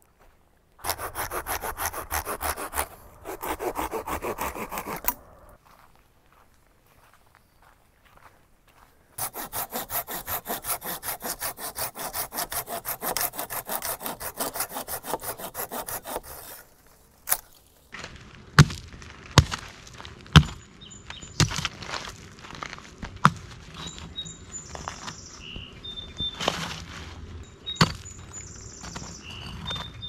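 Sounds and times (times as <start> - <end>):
hand saw cutting branch: 0.8 - 5.6, 9.2 - 17.6.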